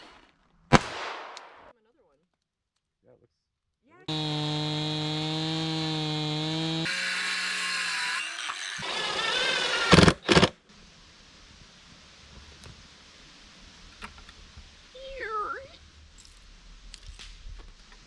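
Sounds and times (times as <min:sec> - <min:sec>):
chainsaw cutting log: 0:04.1 - 0:10.6
circular saw cutting board: 0:04.1 - 0:10.6
faint outdoor ambience: 0:07.0 - 0:18.0.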